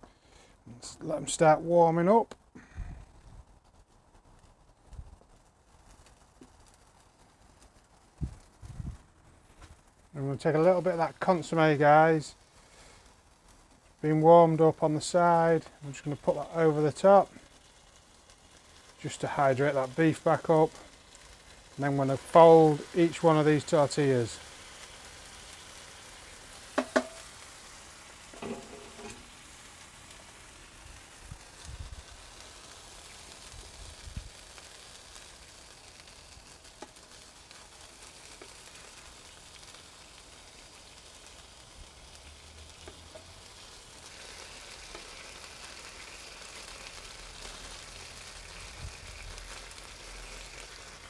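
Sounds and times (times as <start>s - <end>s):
food sizzling on griddle: 5.2s - 51.0s
spatula tapping and scraping: 26.8s - 27.2s, 28.4s - 29.2s.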